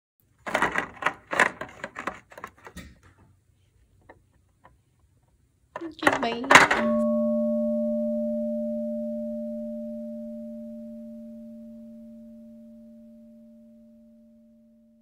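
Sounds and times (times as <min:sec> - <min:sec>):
low bell tone ringing: 0:06.7 - 0:15.0.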